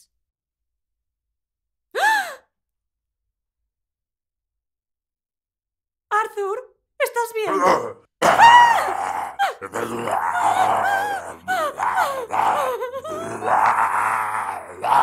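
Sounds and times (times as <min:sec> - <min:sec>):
cartoon monster snarling and growling: 0:07.5 - 0:15.0.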